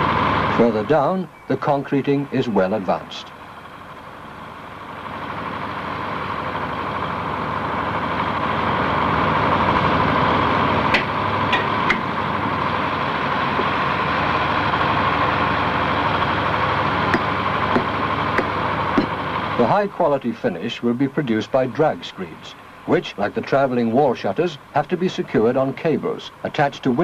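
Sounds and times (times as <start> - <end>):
heavy machinery engine running: 0.0 - 27.0
sharp metallic knocks: 10.9 - 12.1, 17.1 - 19.2.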